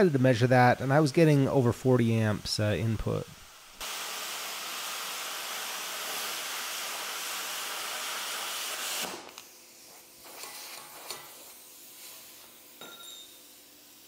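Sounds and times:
quieter hiss: 0.0s - 5.8s
plasma cutter hissing: 0.0s - 12.7s.

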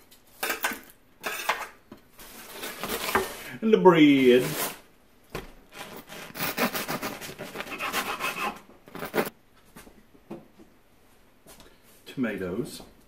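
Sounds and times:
bread knife sawing crusty loaf: 5.8s - 9.3s.

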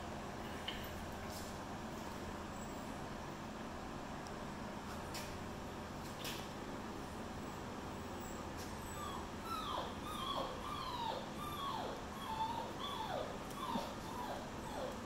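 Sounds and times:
puppy whining: 8.3s - 15.0s.

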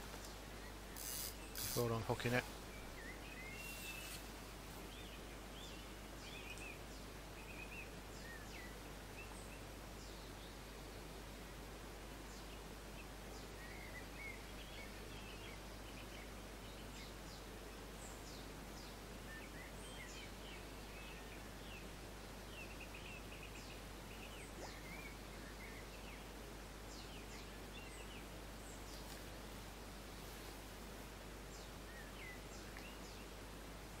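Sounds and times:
outdoor background hiss: 0.0s - 34.0s
small birds chirping: 0.2s - 4.3s, 22.5s - 26.3s.

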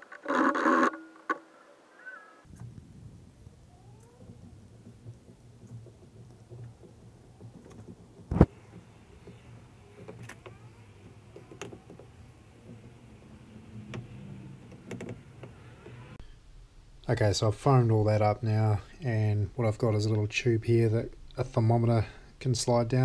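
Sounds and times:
sharp clicks and knocks: 4.0s - 16.2s.

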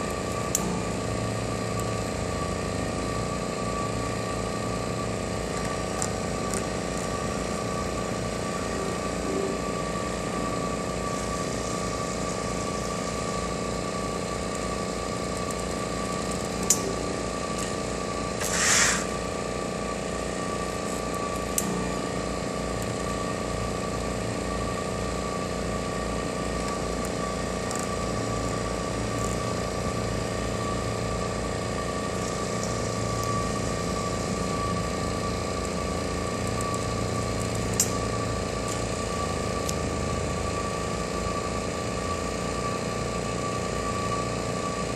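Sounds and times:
machine motors and pump humming: 0.0s - 44.9s
short hiss: 18.4s - 19.1s.

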